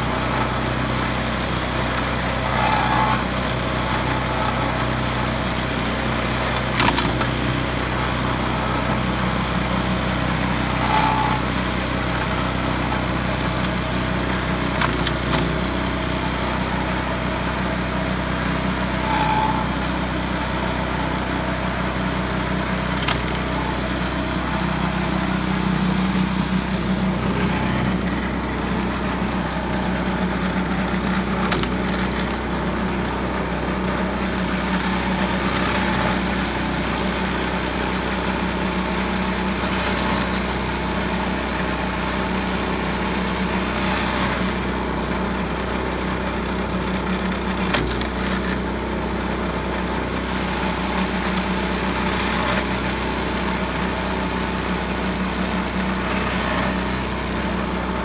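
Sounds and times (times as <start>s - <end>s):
small gasoline engine running: 0.0s - 58.0s.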